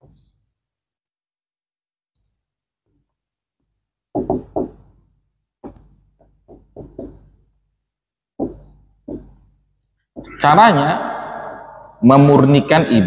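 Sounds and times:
marker knocking on whiteboard: 0:04.1 - 0:05.0, 0:05.6 - 0:07.4, 0:08.4 - 0:09.5.

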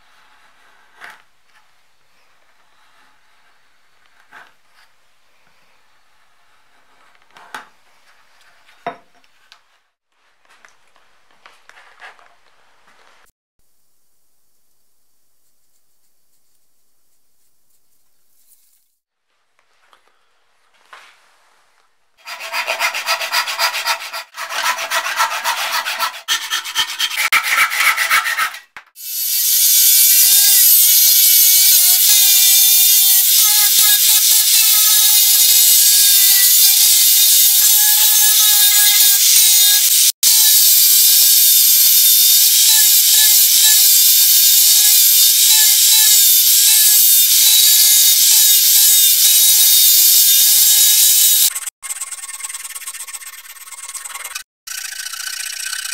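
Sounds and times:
hand saw cutting wood: 0:22.2 - 0:28.8
angle grinder grinding wood: 0:22.2 - 0:55.9.

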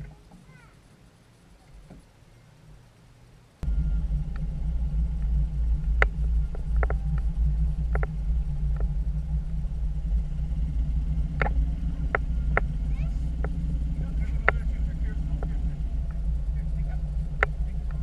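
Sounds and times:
outboard motor running: 0:03.6 - 0:18.0
sharp clicks and knocks: 0:05.2 - 0:09.3, 0:10.7 - 0:18.0.

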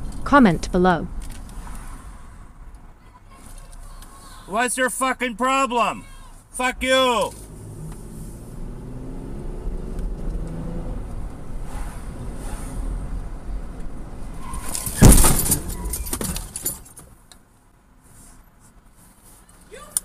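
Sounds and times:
car engine accelerating: 0:06.6 - 0:14.4
car collision bang and crunch: 0:14.6 - 0:17.1.

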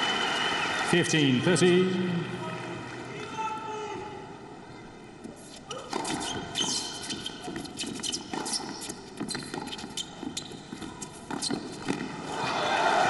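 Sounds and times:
crowd cheering and applauding: 0:00.0 - 0:01.4, 0:12.3 - 0:13.0
footsteps on hard court: 0:05.3 - 0:12.2
racket striking tennis ball: 0:05.8 - 0:10.0.

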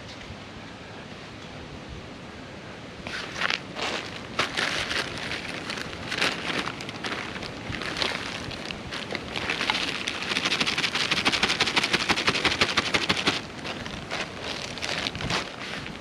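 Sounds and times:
plastic bag crinkling: 0:03.9 - 0:16.0.

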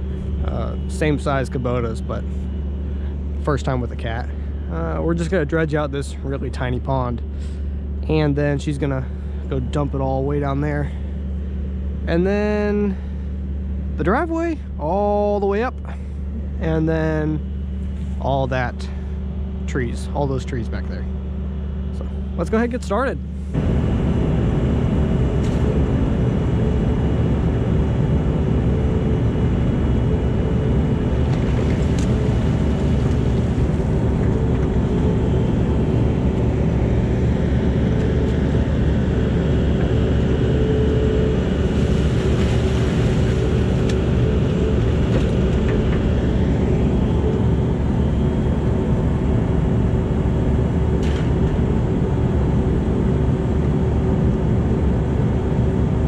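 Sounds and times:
faint high whine: 0:00.0 - 0:56.0.

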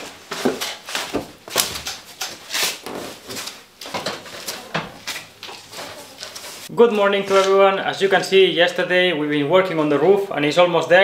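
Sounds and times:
footsteps: 0:00.0 - 0:08.3.

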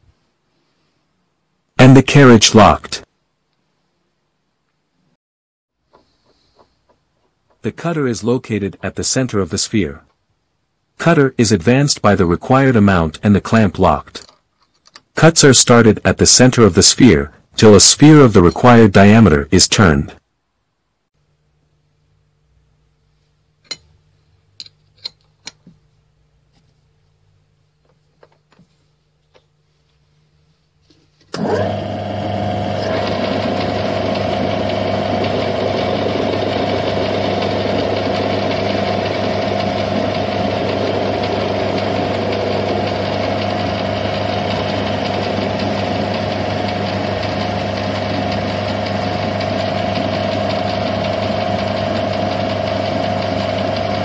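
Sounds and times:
metal lathe humming: 0:31.4 - 0:54.0.

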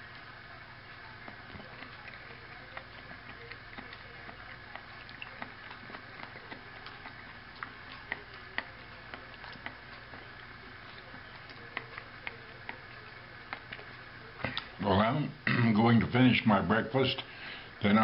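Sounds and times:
low room hum: 0:00.0 - 0:18.0
chewing clicks: 0:00.9 - 0:14.8.

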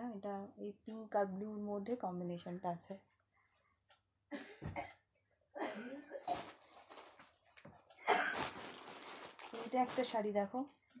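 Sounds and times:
cloth rustling and swishing: 0:06.2 - 0:10.4.

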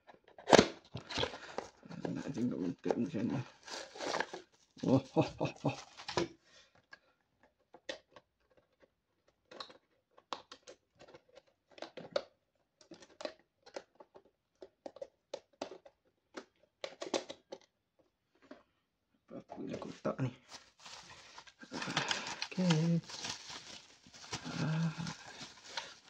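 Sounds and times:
plastic packaging crackling: 0:03.4 - 0:06.3, 0:20.5 - 0:26.0.

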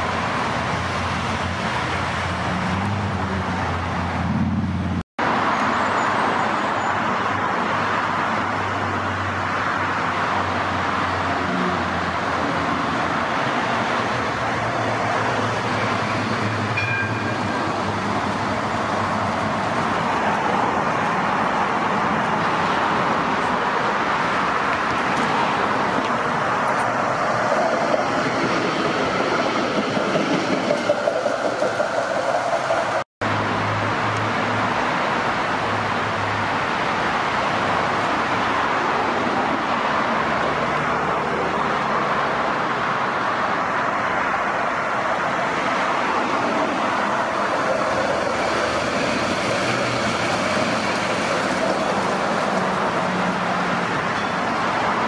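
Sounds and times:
road traffic: 0:00.0 - 0:55.0
tram wheels rolling on rails: 0:11.0 - 0:33.4, 0:44.4 - 0:55.0.

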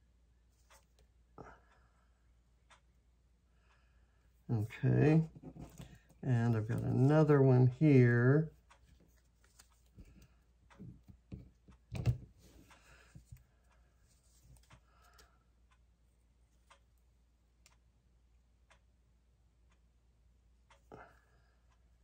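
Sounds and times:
small taps on a desk: 0:11.0 - 0:12.3.

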